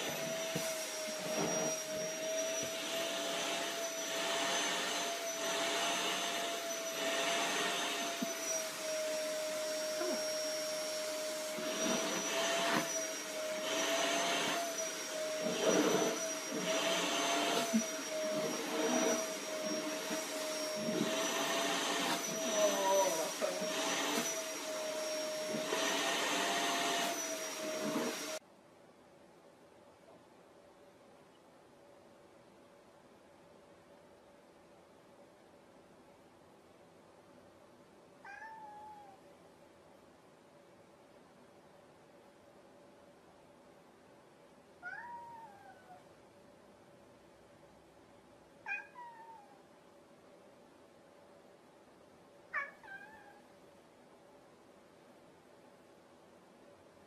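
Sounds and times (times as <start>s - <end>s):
vacuum cleaner running: 0.0s - 28.4s.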